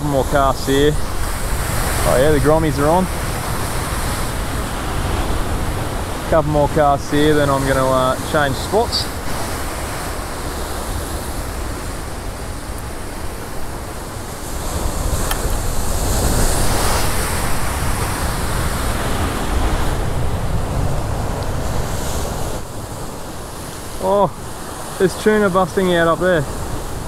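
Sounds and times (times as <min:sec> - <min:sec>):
ocean surf breaking over rocks: 0:00.0 - 0:27.0
wind rumbling on microphone: 0:00.0 - 0:27.0.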